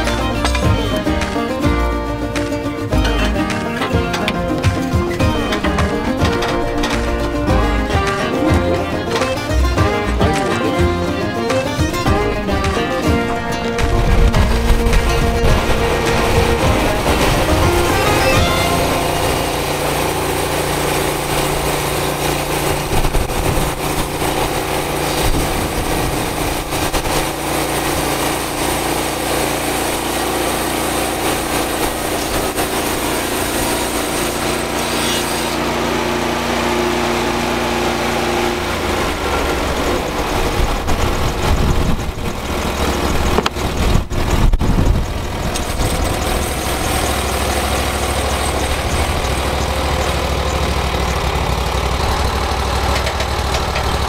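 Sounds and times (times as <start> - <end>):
band blade cutting log: 0.0 - 36.9
sawmill engine running under load: 0.0 - 54.0.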